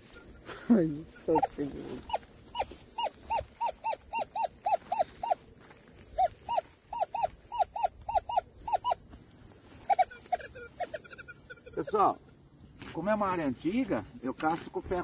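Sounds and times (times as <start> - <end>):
animal calling repeated short notes: 1.2 - 5.4, 6.1 - 9.0, 9.8 - 11.8.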